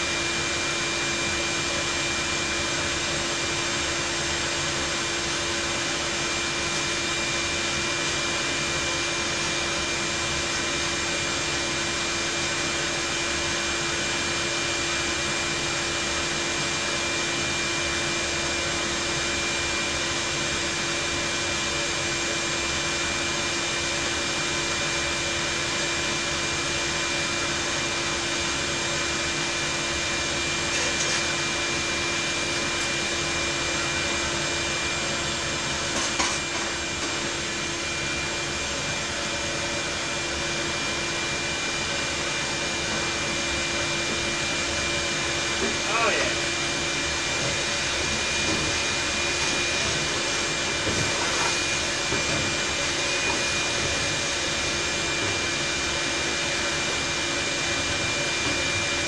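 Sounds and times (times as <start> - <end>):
shop vacuum running: 0.0 - 59.0.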